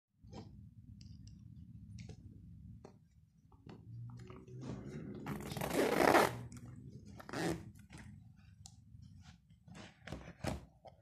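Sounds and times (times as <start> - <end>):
zipper rasping open: 5.3 - 6.5, 7.2 - 7.7.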